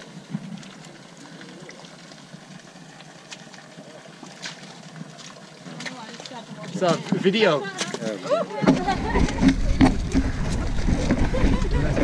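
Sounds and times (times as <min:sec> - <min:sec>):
muddy water sloshing and splashing: 0:00.0 - 0:12.0.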